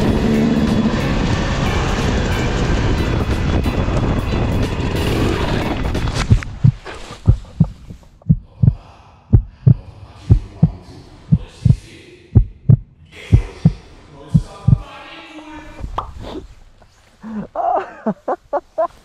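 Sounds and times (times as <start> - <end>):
heartbeat thumps: 6.2 - 14.9.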